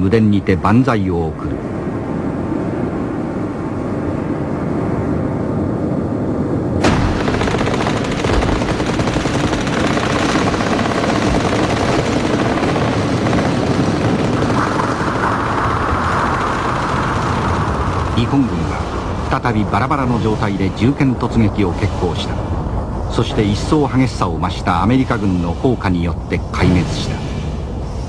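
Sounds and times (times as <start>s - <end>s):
steady low rumble: 0.0s - 28.0s
sharp crack: 6.8s - 12.5s
rapid gunfire: 6.8s - 18.4s.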